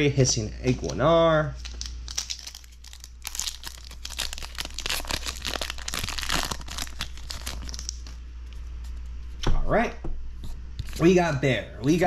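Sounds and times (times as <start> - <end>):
foil wrapper tearing and crinkling: 1.6 - 8.2.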